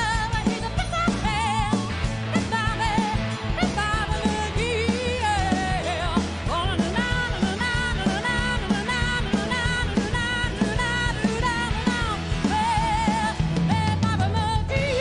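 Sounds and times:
bass guitar: 0.0s - 15.0s
drum kit steady beat: 0.0s - 15.0s
electric guitar: 0.0s - 15.0s
woman singing: 0.0s - 15.0s.

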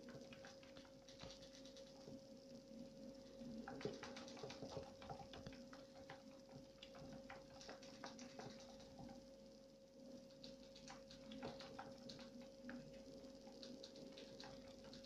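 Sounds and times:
faint steady hum: 0.0s - 15.0s
rat feet pattering on exercise wheel: 3.7s - 9.2s.

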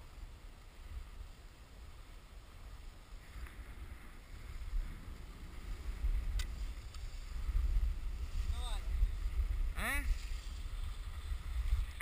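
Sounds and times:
skis sliding on packed snow: 0.0s - 12.0s
wind buffeting microphone: 0.7s - 12.0s
faint clicks: 6.3s - 7.1s.

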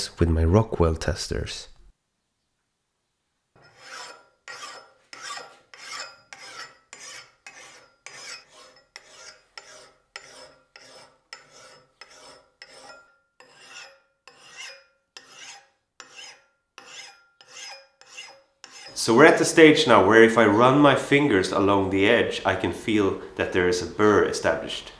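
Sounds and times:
file rasping on steel edge: 3.6s - 19.0s.

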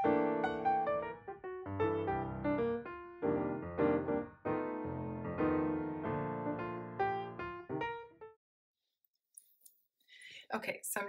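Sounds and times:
piano music: 0.0s - 8.4s.

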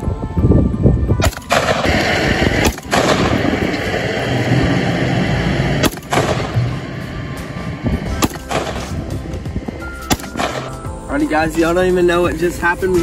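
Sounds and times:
rifle gunfire: 1.2s - 4.4s, 5.8s - 6.9s, 8.1s - 9.0s, 10.0s - 10.8s.

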